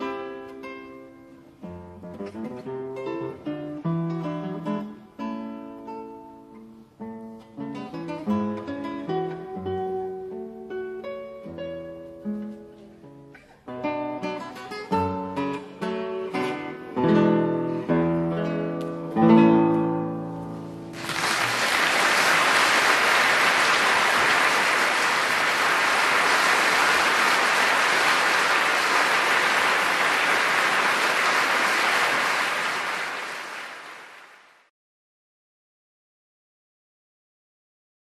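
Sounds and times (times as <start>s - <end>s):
classical guitar waltz: 0.0s - 20.9s.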